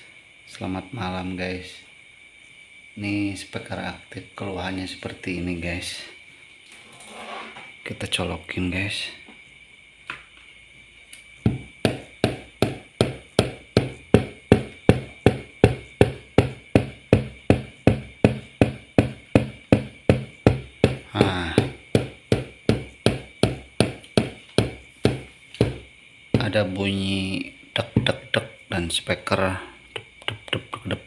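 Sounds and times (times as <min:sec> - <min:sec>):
speaker woofer thumping pulses: 0:11.4 - 0:26.8.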